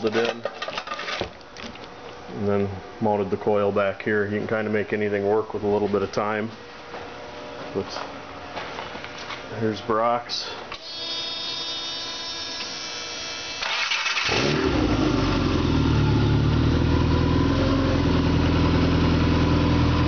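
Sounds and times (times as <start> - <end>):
starter motor cranking: 13.6 - 14.9
car engine idling: 14.7 - 20.0.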